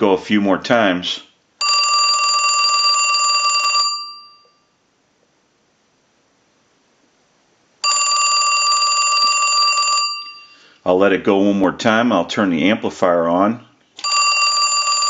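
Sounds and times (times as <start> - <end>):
telephone bell ringing: 1.6 - 4.7, 7.8 - 10.6, 14.0 - 15.0.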